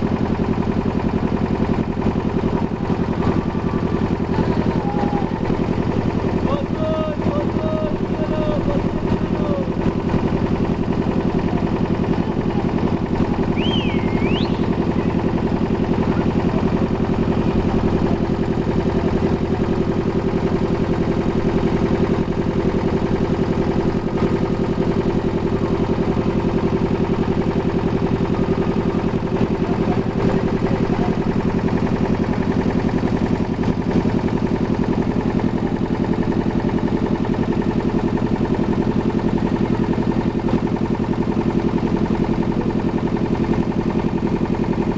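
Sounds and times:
ferry engine drone: 0.0s - 44.9s
high whistle-like chirp: 13.6s - 14.8s.

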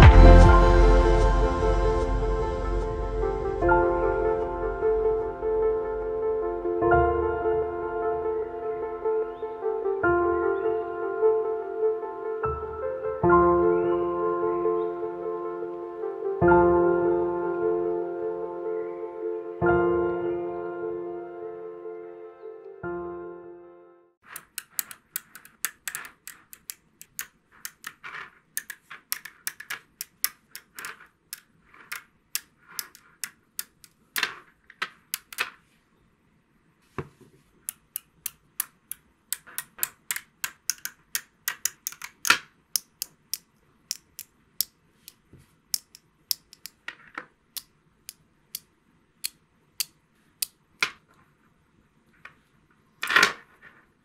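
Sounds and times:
magnetic balls clicking together: 24.2s - 35.6s, 37.6s - 51.0s.

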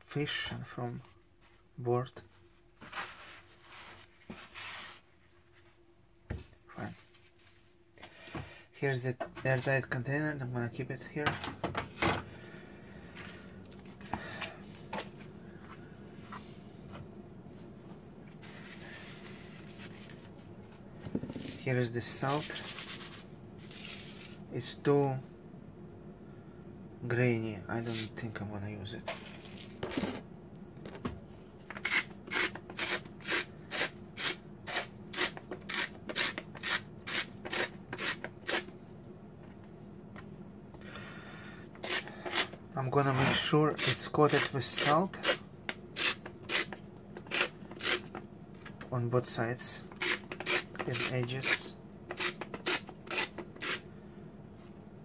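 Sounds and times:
low room hum: 0.0s - 55.0s
salt grinder rasping: 31.8s - 38.7s, 41.8s - 45.4s, 46.0s - 48.2s, 50.0s - 53.8s.

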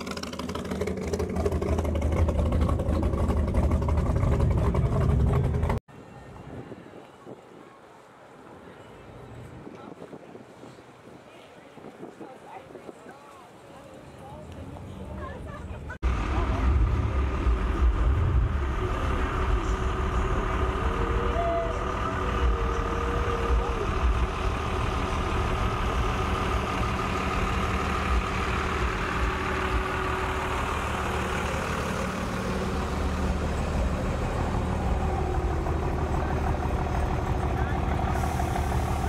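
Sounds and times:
pickup engine running at low revs: 0.0s - 5.8s, 16.0s - 39.0s.

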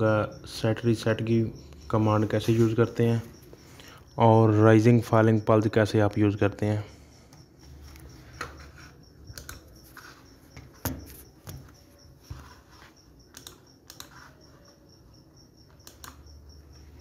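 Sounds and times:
mouse and keyboard clicks: 9.3s - 9.8s, 13.3s - 14.3s, 15.7s - 16.4s.

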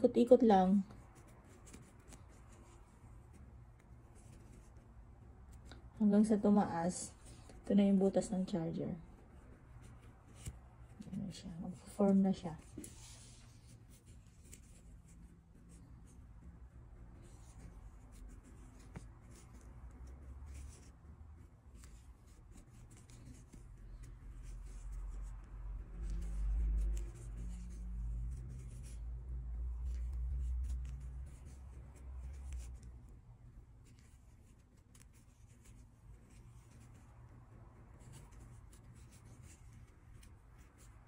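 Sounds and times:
yarn rubbing on crochet hook: 16.1s - 33.1s.

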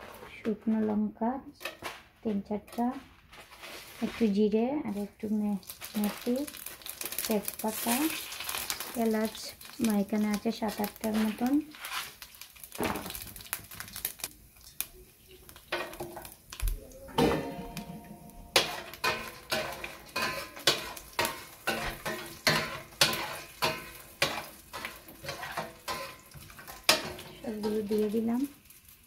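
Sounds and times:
spices sizzling in hot oil: 3.6s - 29.0s
utensil scraping and knocking pot: 17.1s - 28.3s.

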